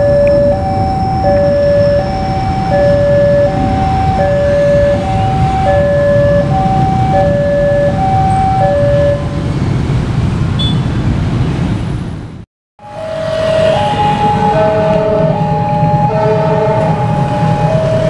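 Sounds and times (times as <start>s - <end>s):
level crossing two-tone alarm: 0.0s - 9.3s, 12.8s - 18.0s
motorcycle engines rumbling: 0.0s - 18.0s.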